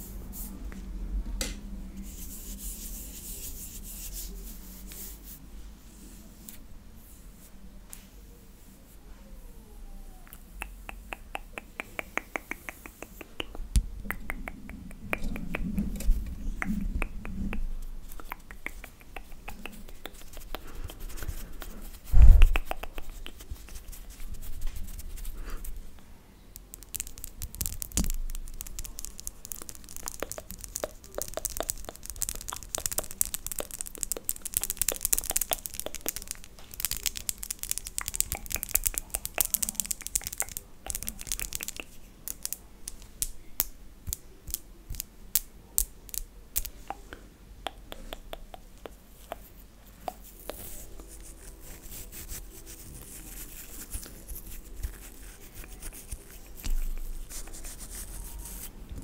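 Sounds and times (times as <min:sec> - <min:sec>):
fingernails clicking and tapping: 0:10.9 - 0:15.9.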